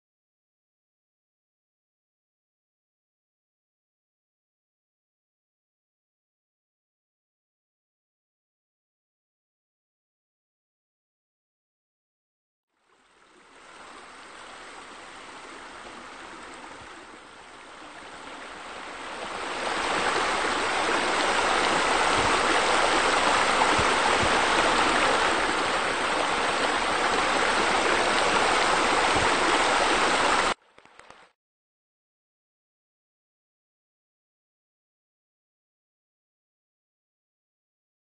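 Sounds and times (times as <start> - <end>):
water splashing over rocks: 13.1 - 31.3.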